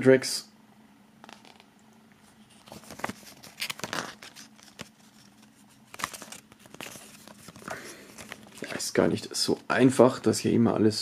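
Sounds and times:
paper rustling and crinkling: 0:02.2 - 0:09.7.

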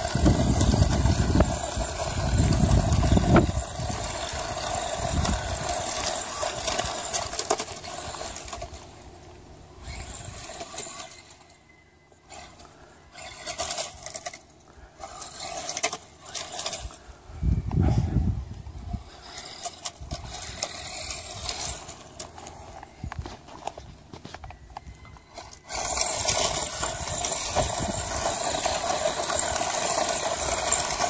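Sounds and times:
rc truck motor whining: 0:00.0 - 0:31.0
tyres scattering gravel: 0:25.6 - 0:31.0.

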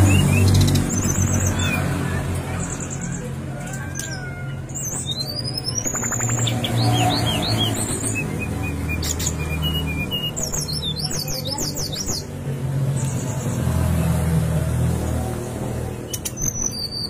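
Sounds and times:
bird singing: 0:00.0 - 0:14.4, 0:15.9 - 0:17.0.

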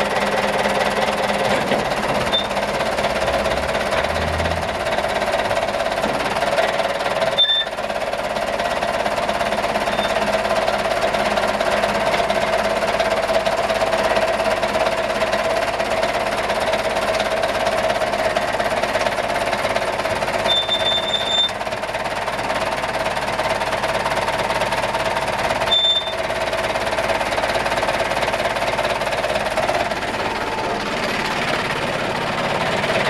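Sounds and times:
hydraulic pump whining: 0:01.2 - 0:07.9, 0:19.0 - 0:21.7.

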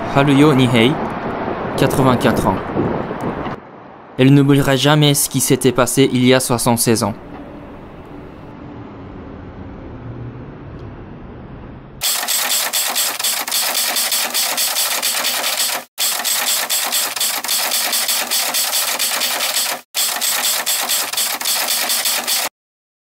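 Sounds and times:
city street ambience hum: 0:00.0 - 0:13.9
typewriter keys clattering: 0:12.0 - 0:22.5.

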